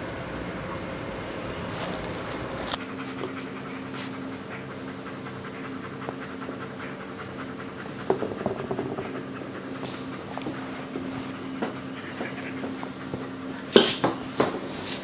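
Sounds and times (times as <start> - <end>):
low hum: 0.0 - 13.6
dog panting: 0.0 - 15.0
toy and paws knocking on floor: 8.0 - 9.2.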